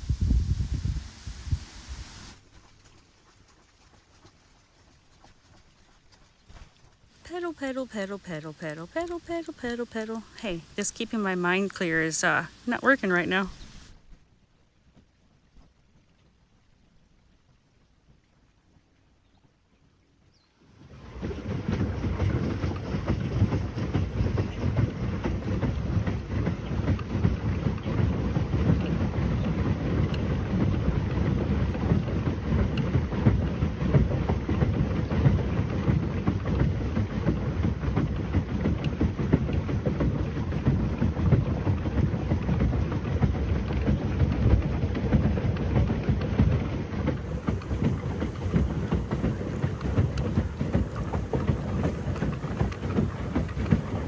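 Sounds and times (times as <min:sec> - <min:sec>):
wind buffeting microphone: 0:00.0 - 0:02.4, 0:20.9 - 0:54.0.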